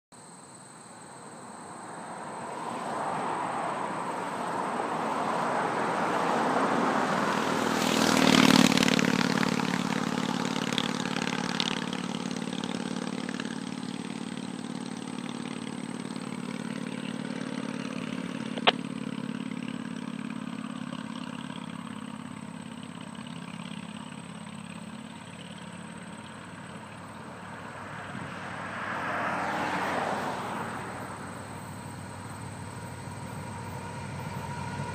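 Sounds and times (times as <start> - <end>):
low engine hum: 0.2 - 34.9
vehicle passing loudly: 1.5 - 22.8, 25.8 - 34.9
freight train approaching: 31.0 - 34.9.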